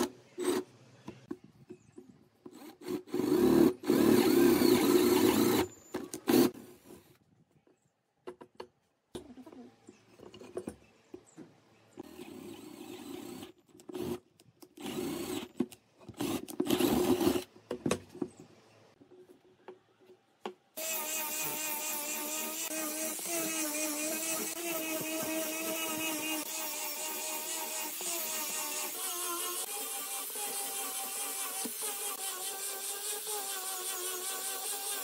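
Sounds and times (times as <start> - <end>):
cordless drill boring into wood: 2.6 - 6.6, 20.8 - 35.0
angle grinder sanding wood: 20.8 - 35.0.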